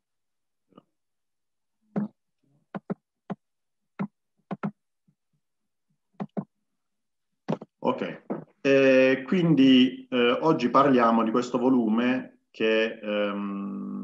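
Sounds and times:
keyboard and mouse clicks: 0:01.9 - 0:03.4, 0:04.0 - 0:04.8, 0:06.2 - 0:06.5.

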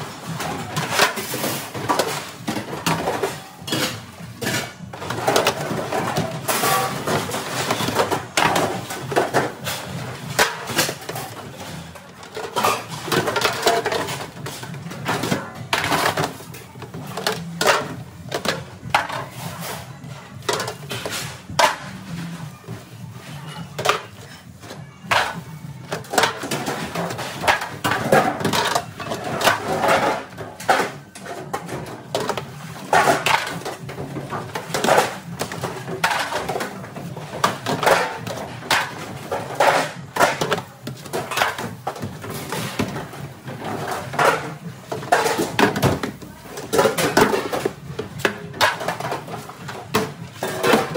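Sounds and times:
steel pans clattering: 0:00.3 - 0:22.4.

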